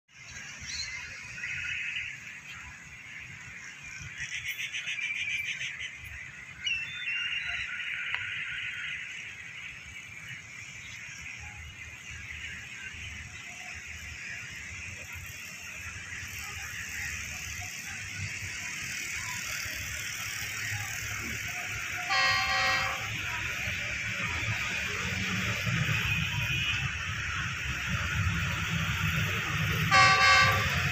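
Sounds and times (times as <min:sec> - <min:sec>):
distant locomotive horn blast: 0:22.0 - 0:23.6, 0:29.4 - 0:30.9.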